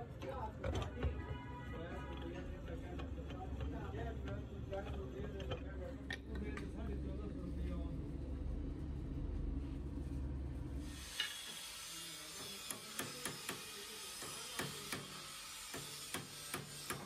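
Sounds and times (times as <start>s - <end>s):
steady low hum: 3.8s - 11.0s.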